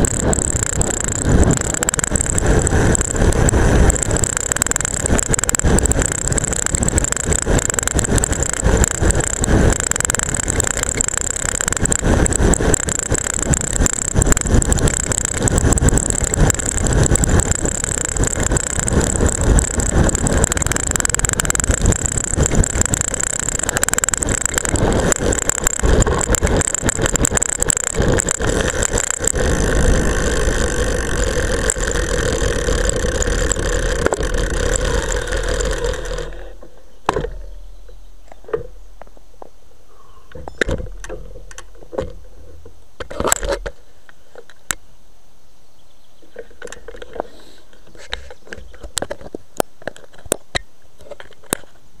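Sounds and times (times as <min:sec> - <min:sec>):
camera rattling in strap: 0:00.0 - 0:37.5
rushing wind: 0:00.0 - 0:37.8
bicycle tyre noise: 0:00.0 - 0:38.8.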